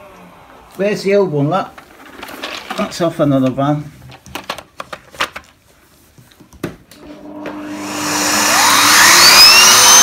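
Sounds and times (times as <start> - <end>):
vacuum cleaner motor whining: 7.0 - 10.0.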